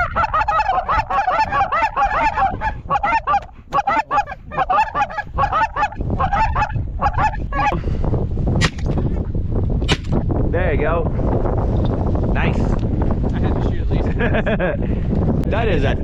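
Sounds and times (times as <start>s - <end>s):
goose calls honking: 0.0s - 7.7s.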